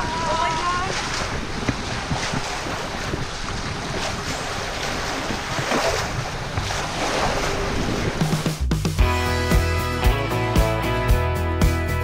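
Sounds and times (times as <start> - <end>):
wind buffeting microphone: 0.0 - 8.5
water rushing and splashing on hull: 0.0 - 12.0.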